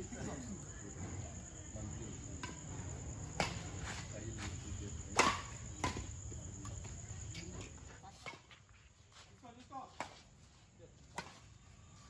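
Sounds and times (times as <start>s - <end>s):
insects chirring: 0.0s - 12.0s
rackets hitting shuttlecock: 5.1s - 6.8s.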